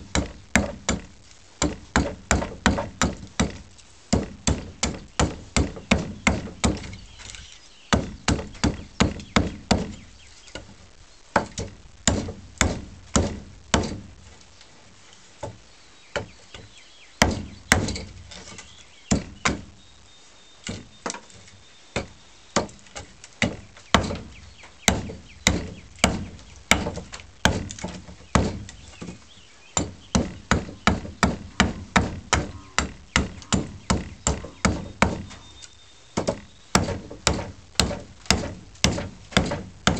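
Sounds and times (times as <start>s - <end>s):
axe chopping wood: 0.0s - 7.0s, 7.9s - 10.0s, 11.4s - 14.1s, 17.2s - 19.7s, 22.0s - 29.2s, 29.8s - 35.4s, 36.2s - 39.9s.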